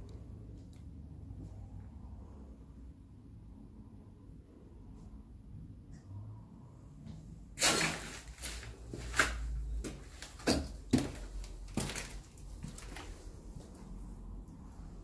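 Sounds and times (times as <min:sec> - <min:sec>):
footsteps crunching on debris: 0:07.6 - 0:13.2.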